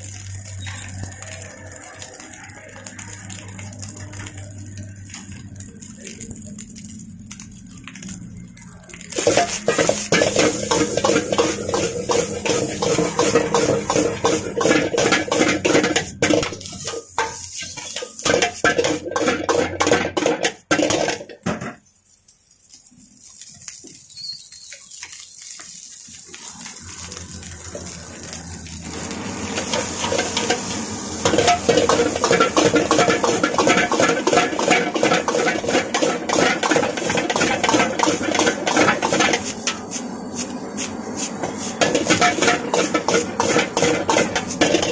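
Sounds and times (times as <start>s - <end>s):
food frying: 0.0s - 44.9s
ladle scraping and clanking wok: 9.0s - 21.9s, 27.1s - 44.9s.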